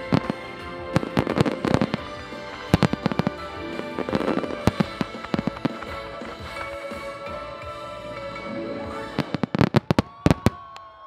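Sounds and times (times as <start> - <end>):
firework bangs: 0.0 - 6.9
music: 0.0 - 10.5.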